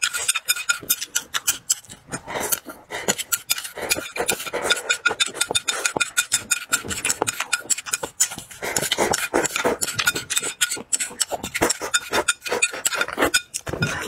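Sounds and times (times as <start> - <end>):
chewing mouth sounds: 0.0 - 14.0
chopsticks clicking against a bowl: 0.0 - 14.0.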